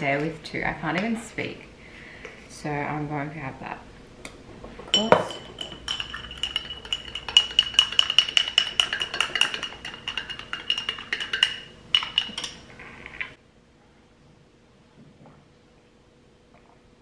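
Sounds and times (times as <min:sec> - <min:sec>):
spoon clinking in glass: 0:04.9 - 0:12.7.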